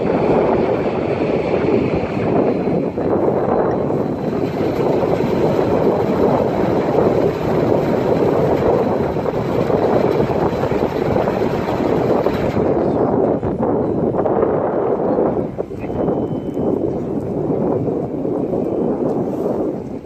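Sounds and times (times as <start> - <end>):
boat engine rumble: 0.0 - 20.0
water noise: 0.0 - 20.0.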